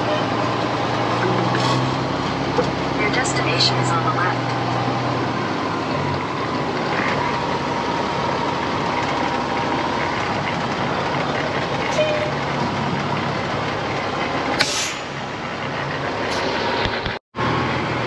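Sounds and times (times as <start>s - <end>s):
truck engine running: 0.0s - 18.0s
short hiss: 14.6s - 15.1s.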